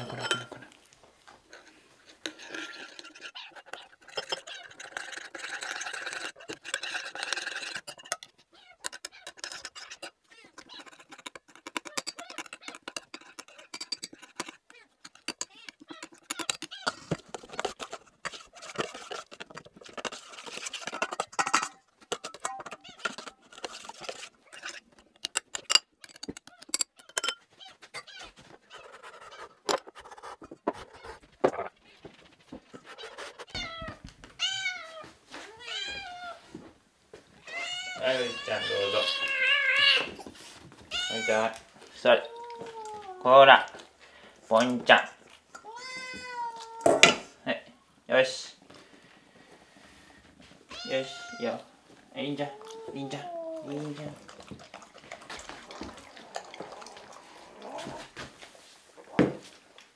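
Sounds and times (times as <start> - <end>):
metal spoon scraping steel bowl: 0.0 - 0.7, 1.5 - 31.2.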